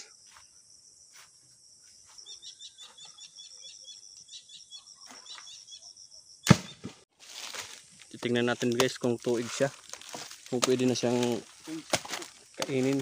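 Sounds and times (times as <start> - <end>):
coconut thudding on ground: 6.5 - 7.8, 9.9 - 13.0
high insect drone: 7.5 - 13.0.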